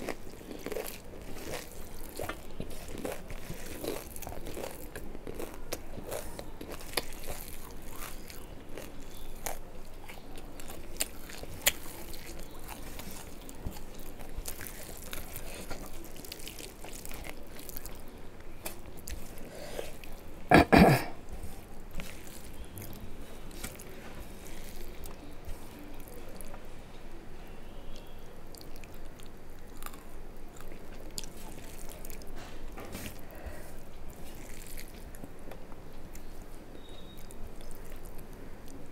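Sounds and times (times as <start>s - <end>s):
close-up chewing: 0.0s - 20.4s, 21.0s - 26.7s, 27.8s - 38.9s
brief throat sound: 20.5s - 21.2s.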